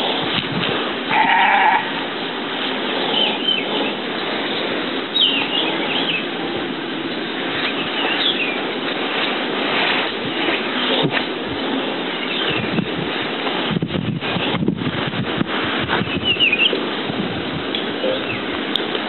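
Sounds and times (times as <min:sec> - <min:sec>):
steady background hiss: 0:00.0 - 0:19.0
loud bleat: 0:01.1 - 0:02.0
small birds chirping: 0:03.1 - 0:06.3, 0:07.5 - 0:08.7, 0:16.0 - 0:16.8.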